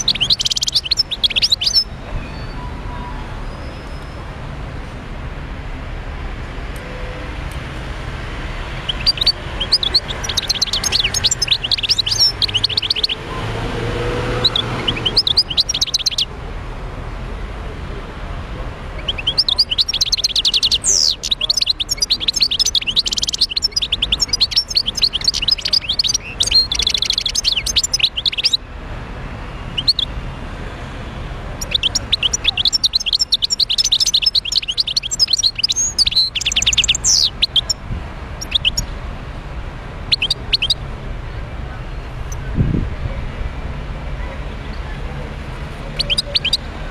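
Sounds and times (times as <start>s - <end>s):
goldfinch twittering song: 0.0s - 2.6s, 8.6s - 16.3s, 19.0s - 28.6s, 29.7s - 30.1s, 31.6s - 37.8s, 38.4s - 39.0s, 40.0s - 40.8s, 45.9s - 46.7s.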